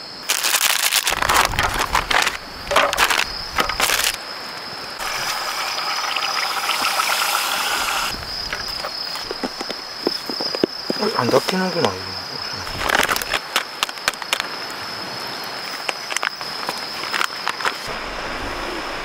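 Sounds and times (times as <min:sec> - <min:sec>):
steady hiss: 0:00.0 - 0:15.4
crickets chirping: 0:00.0 - 0:19.0
rustling and clicking: 0:00.4 - 0:04.2, 0:12.7 - 0:14.5.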